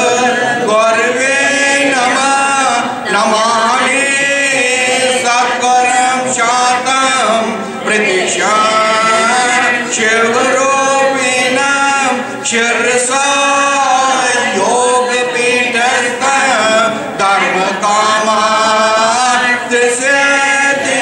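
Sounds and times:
group chanting melodically: 0.0s - 21.0s
man chanting: 0.0s - 21.0s.

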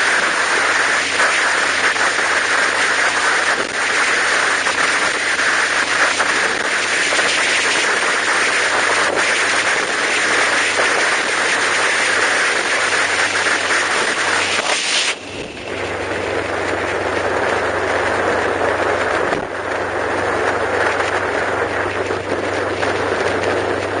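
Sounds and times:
steady low hum: 0.0s - 24.0s
vehicle road and wind noise: 0.0s - 24.0s.

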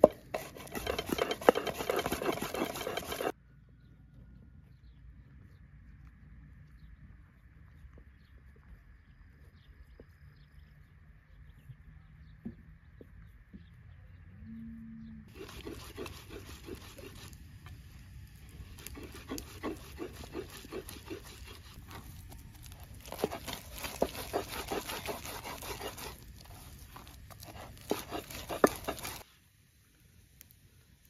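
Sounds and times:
hands kneading dough: 0.0s - 3.3s, 15.3s - 17.4s, 18.6s - 29.2s.

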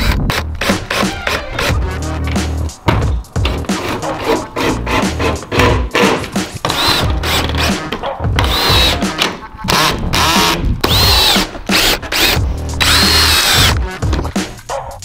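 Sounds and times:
cordless drill driving screws: 6.0s - 7.7s, 8.4s - 9.0s, 9.7s - 13.8s.

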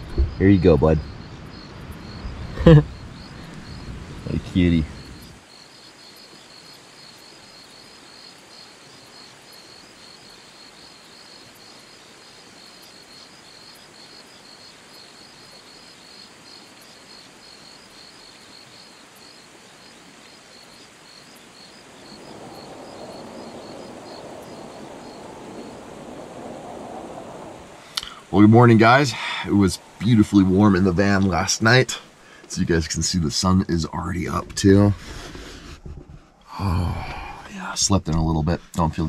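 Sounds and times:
crickets chirping: 0.0s - 39.0s
river rushing: 14.4s - 32.6s.

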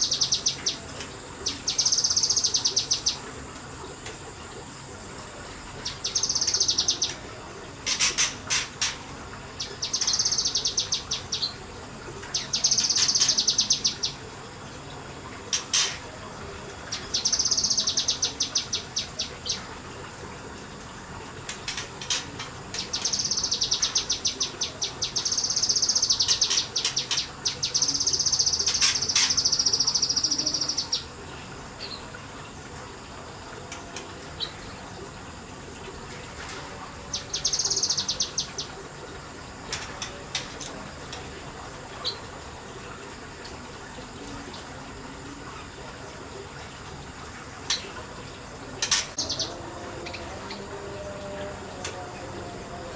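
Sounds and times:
bird singing rapid notes: 5.8s - 7.2s, 37.1s - 38.7s, 48.8s - 50.2s.

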